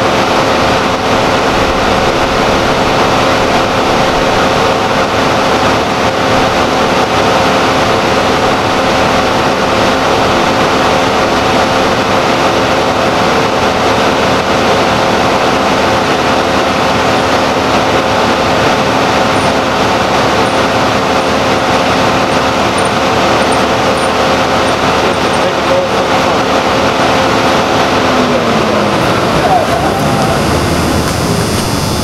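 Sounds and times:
motor droning: 0:00.0 - 0:32.0.

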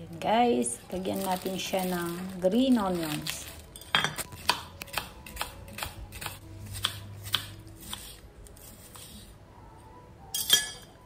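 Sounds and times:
knife chopping on wooden board: 0:04.4 - 0:08.2.

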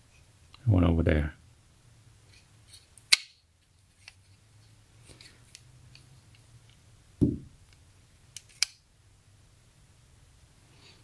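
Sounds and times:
dull thump: 0:07.2 - 0:07.5.

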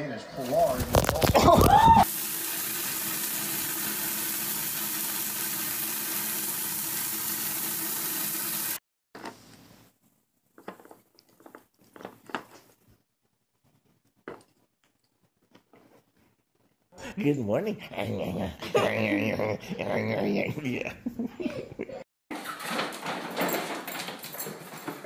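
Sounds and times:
shower spray hissing: 0:02.0 - 0:08.8.

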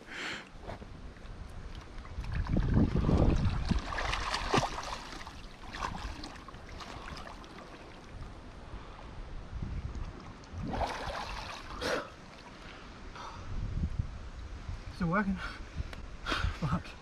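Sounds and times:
river water splashing: 0:01.1 - 0:09.2, 0:09.9 - 0:13.1.

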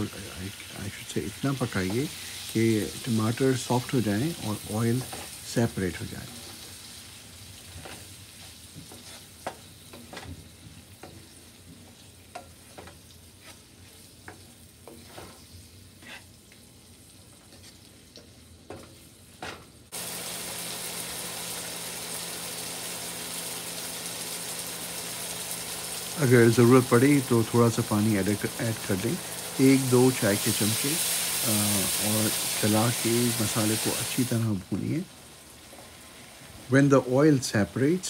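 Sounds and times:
tomatoes sizzling in oil: 0:00.0 - 0:38.0
wooden spoon scraping a pan: 0:04.2 - 0:05.4, 0:07.6 - 0:16.4.

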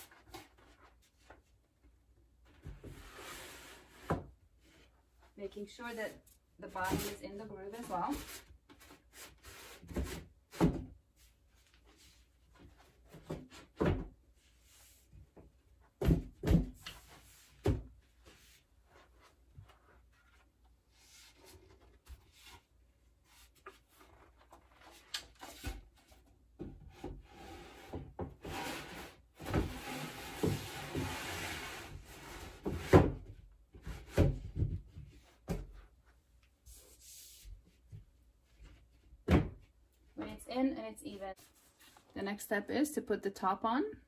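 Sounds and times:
wooden panels scraping in grooves: 0:27.3 - 0:33.0.

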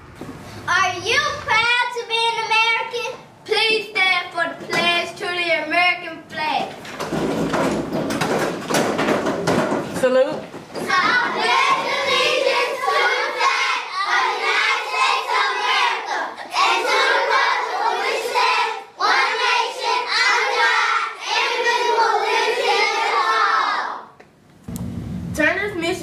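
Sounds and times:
children reciting in unison: 0:10.8 - 0:24.2.

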